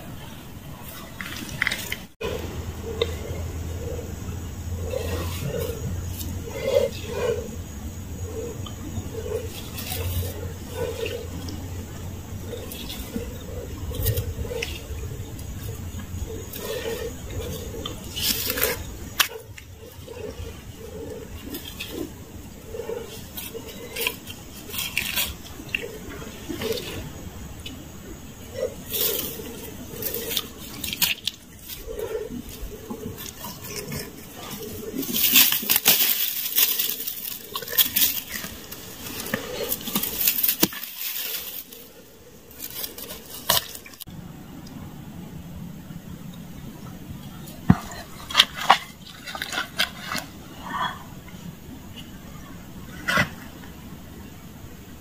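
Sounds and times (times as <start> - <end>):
dry grass rustling: 0.7 - 44.0
muddy water splashing: 47.5 - 51.6.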